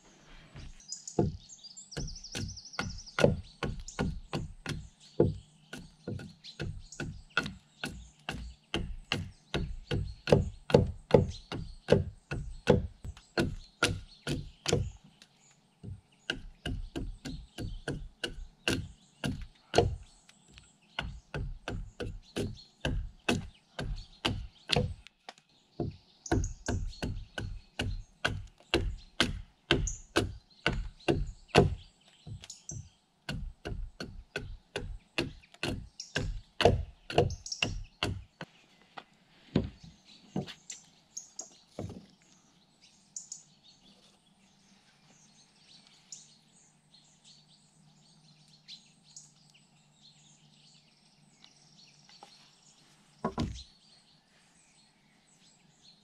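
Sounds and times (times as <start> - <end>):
hand axe chopping log: 2.0 - 15.0, 15.8 - 20.0, 21.0 - 25.0, 25.8 - 38.3, 53.3 - 53.6.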